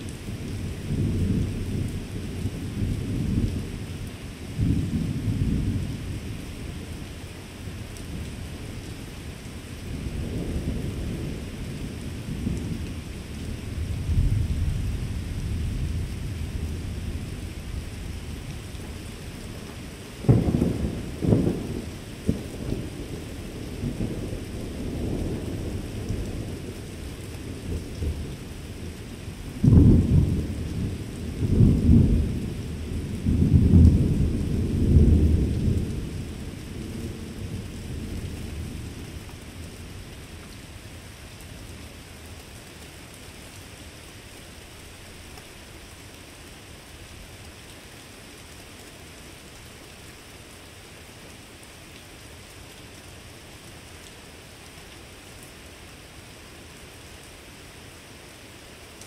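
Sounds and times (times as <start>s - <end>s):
steady rain: 0.0s - 59.0s
thunder claps and rumbles: 0.1s - 3.8s, 4.6s - 6.4s, 9.9s - 18.1s, 20.2s - 39.8s.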